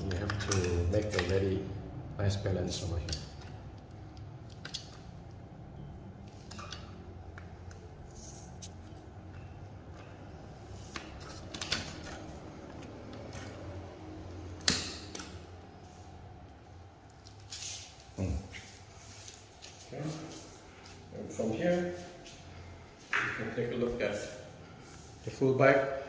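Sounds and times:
bicycle handling clicks and taps: 0:00.0 - 0:01.5
low steady hum: 0:00.0 - 0:26.0.

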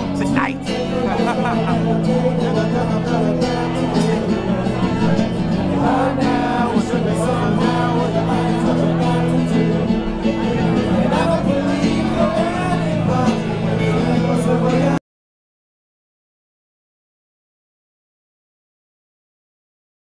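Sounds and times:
guitar accompaniment: 0:00.0 - 0:15.0
man singing into a microphone: 0:00.0 - 0:15.0.

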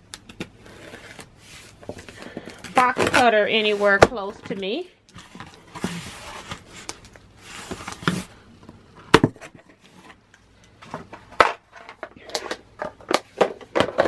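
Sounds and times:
cardboard rustling scrape: 0:00.6 - 0:04.6, 0:05.2 - 0:08.4.

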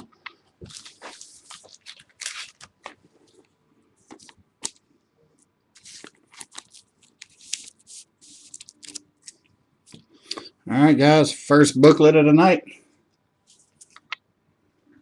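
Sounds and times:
plastic sleeves crinkling: 0:00.0 - 0:04.8, 0:05.4 - 0:10.0.

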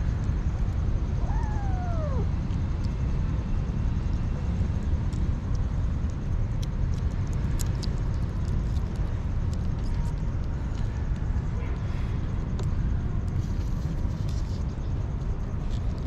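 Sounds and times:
steady low rumble: 0:00.0 - 0:16.0
kittens chewing food: 0:05.0 - 0:11.2.

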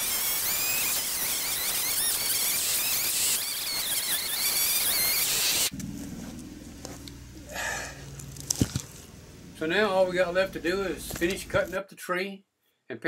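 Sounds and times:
insects hissing: 0:00.0 - 0:05.7.

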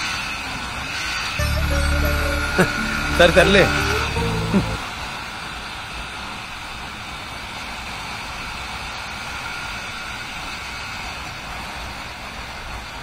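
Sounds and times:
wind and road noise: 0:04.8 - 0:13.0.

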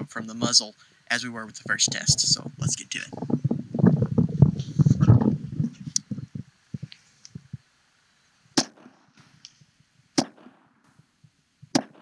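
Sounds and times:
muffled pistol shots: 0:08.6 - 0:09.4, 0:10.2 - 0:10.9, 0:11.7 - 0:12.0.

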